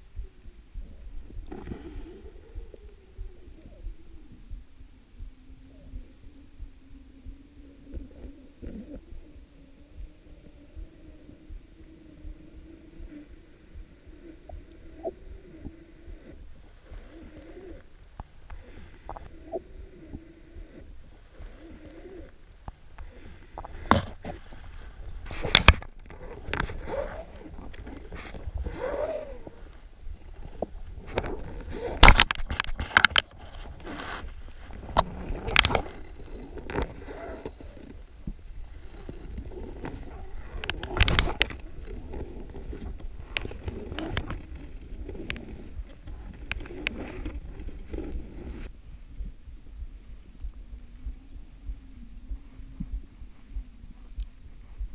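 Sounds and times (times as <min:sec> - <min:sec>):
short gliding tones: 0:00.0 - 0:32.0
soft low thuds: 0:00.0 - 0:32.0, 0:34.3 - 0:54.9
underwater low hum: 0:00.0 - 0:54.9
sharp clicks and knocks: 0:30.6 - 0:33.6
sharp clicks: 0:34.7 - 0:48.7
short high beeps: 0:37.2 - 0:43.5, 0:44.3 - 0:46.5, 0:47.4 - 0:48.7, 0:53.3 - 0:54.9.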